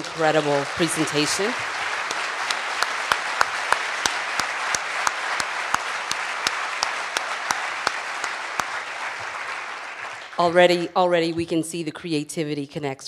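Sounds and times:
audience applauding: 0.0s - 10.9s
nearby hands clapping: 0.7s - 10.4s.

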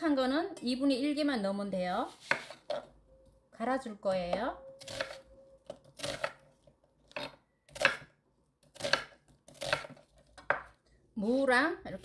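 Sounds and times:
knife chopping on wooden board: 2.2s - 2.8s, 7.1s - 8.1s, 8.7s - 10.8s.

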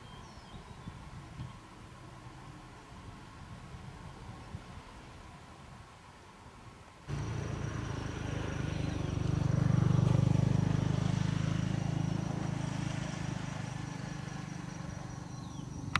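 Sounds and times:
passing vehicle engine rumble: 7.1s - 15.9s.

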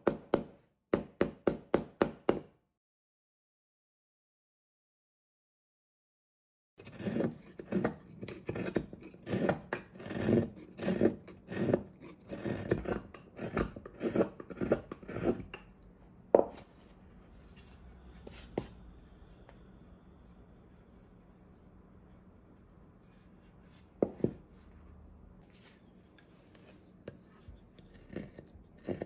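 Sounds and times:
gouge cutting wood shavings: 6.8s - 15.5s.

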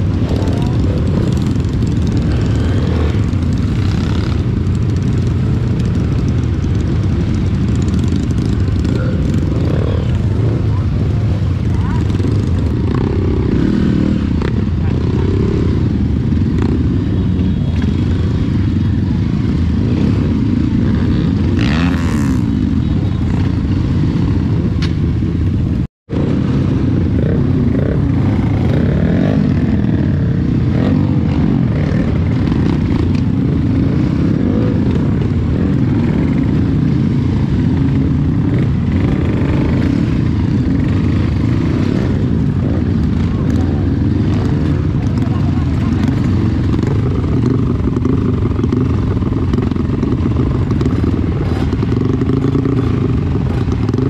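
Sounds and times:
motorcycle engines revving: 0.0s - 54.0s.

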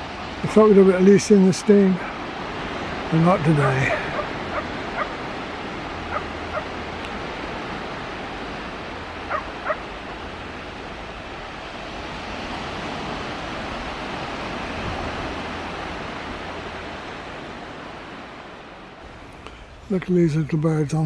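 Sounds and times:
waves washing onto pebbles: 0.0s - 20.4s
wind buffeting microphone: 0.0s - 21.0s
dog yelping: 3.9s - 5.2s, 6.0s - 6.8s, 9.3s - 9.9s.

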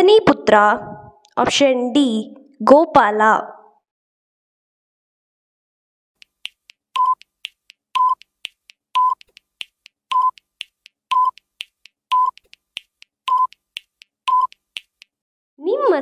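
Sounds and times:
fast clock-like ticking: 6.2s - 15.2s.

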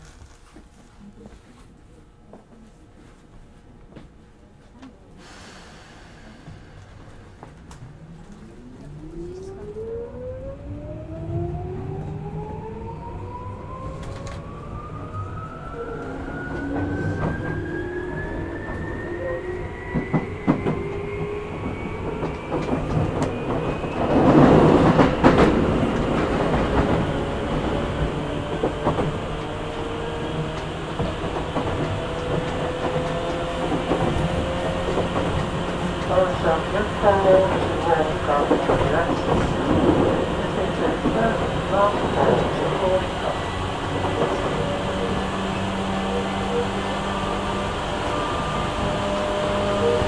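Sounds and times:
rushing rumble with knocks: 30.4s - 42.7s.

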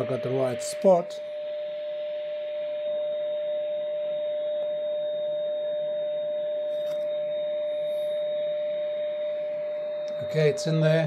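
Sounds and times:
radio hiss: 0.0s - 1.2s
steady test tone from radio: 0.0s - 11.0s.

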